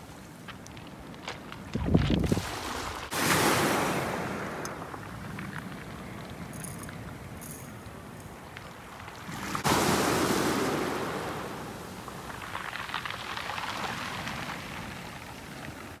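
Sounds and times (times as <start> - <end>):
wave breaking: 2.2 - 5.2, 9.1 - 15.3.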